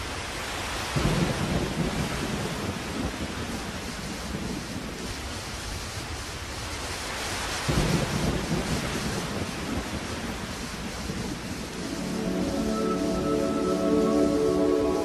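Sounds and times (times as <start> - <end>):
steady rain hissing: 0.0 - 15.0
low roll of thunder: 1.0 - 5.2, 7.7 - 12.1.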